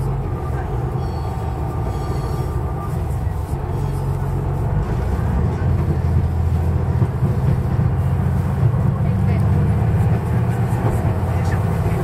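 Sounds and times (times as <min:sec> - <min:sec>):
diesel railcar engine drone: 0:00.0 - 0:12.0.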